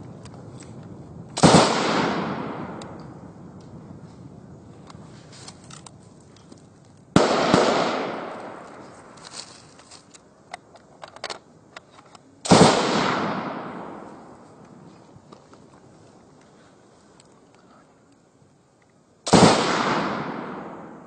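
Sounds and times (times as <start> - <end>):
loud gunshots with echo: 1.4 - 2.9, 7.2 - 8.6, 12.5 - 14.1, 19.3 - 21.0
faint scattered gunshot cracks: 1.4 - 3.0, 7.2 - 8.8, 12.4 - 14.1, 19.3 - 21.0.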